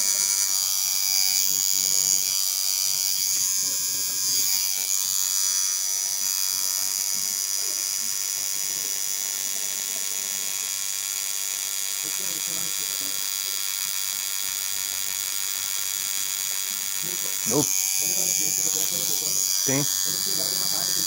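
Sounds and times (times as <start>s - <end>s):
tattoo machine buzzing: 0.0s - 21.0s.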